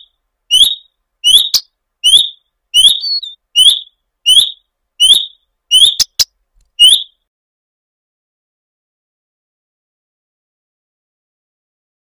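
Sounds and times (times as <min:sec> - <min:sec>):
bird whistled note: 0:00.0 - 0:06.2, 0:06.8 - 0:07.2
bird sharp ticks: 0:00.0 - 0:07.1.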